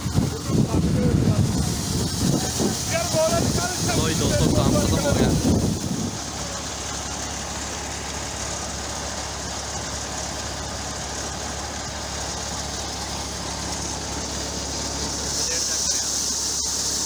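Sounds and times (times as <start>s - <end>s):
threshing drum rushing noise: 0.0s - 6.4s
tractor engine hum: 0.0s - 17.0s.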